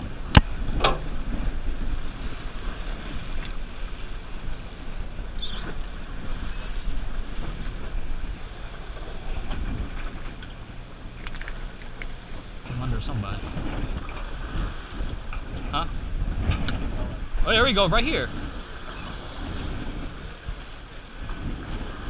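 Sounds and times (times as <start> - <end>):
boat engines rumbling: 0.0 - 22.0
water washing along hull: 0.0 - 22.0
high chirp: 5.4 - 5.7.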